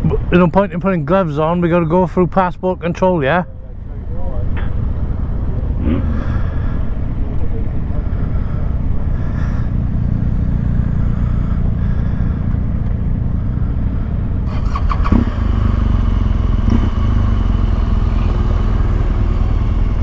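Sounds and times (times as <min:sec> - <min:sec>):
motorcycle engine running: 0:07.2 - 0:20.0.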